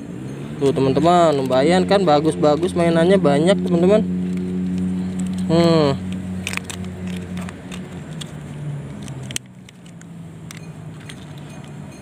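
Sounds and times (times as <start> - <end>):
plastic toys clicking on gravel: 1.0 - 1.8, 3.6 - 12.0.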